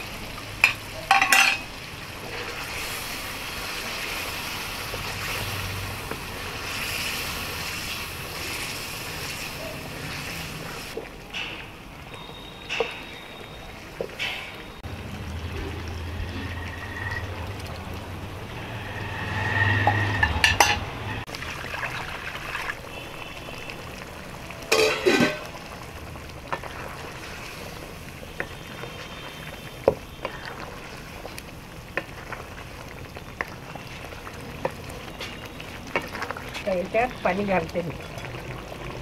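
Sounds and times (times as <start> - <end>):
curry sizzling in a pan: 0.0 - 39.0
utensils clattering on a pan: 0.6 - 1.7, 20.2 - 20.9, 24.7 - 25.6
spatula scraping and tapping a pan: 24.7 - 25.5
liquid ladled into pan: 24.7 - 25.7.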